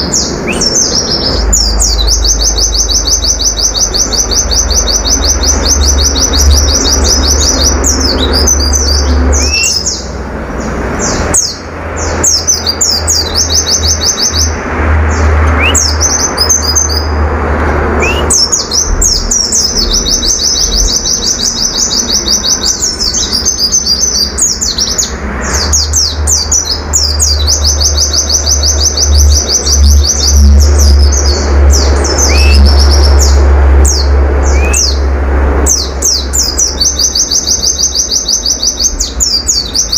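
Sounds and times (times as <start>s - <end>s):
bird singing fast trills: 0.0s - 17.3s, 17.9s - 39.9s
low rumble: 14.5s - 36.8s.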